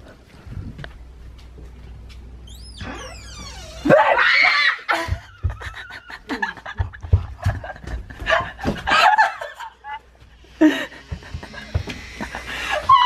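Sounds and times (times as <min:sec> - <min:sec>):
woman screaming: 0:03.8 - 0:05.0
woman laughing: 0:04.9 - 0:10.0, 0:10.6 - 0:13.0.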